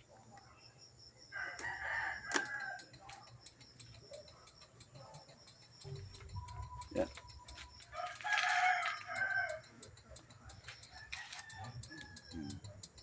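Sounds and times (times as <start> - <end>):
rooster crowing: 1.3 - 2.9, 7.9 - 9.7, 10.9 - 12.7.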